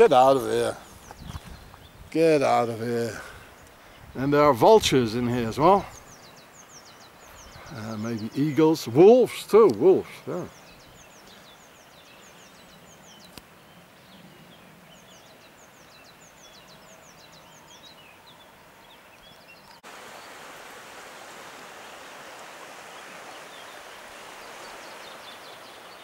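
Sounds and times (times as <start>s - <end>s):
steady rushing hiss: 0.0s - 17.3s, 19.8s - 26.0s
small birds chirping: 0.0s - 20.5s, 21.8s - 26.0s.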